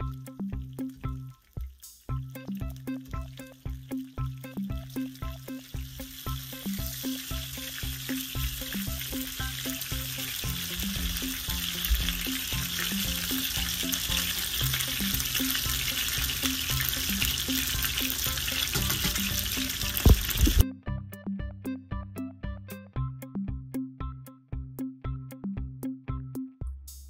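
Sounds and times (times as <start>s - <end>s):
fish sizzling in oil: 0.2s - 20.6s.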